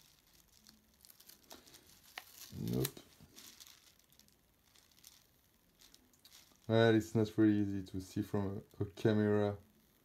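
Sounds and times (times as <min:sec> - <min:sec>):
paper sticker rustling: 0:00.0 - 0:07.3.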